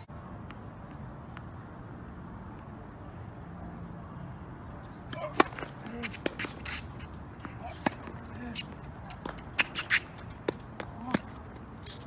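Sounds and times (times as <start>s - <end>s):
outdoor background noise: 0.0s - 12.0s
tennis racquet hitting ball: 5.1s - 11.3s.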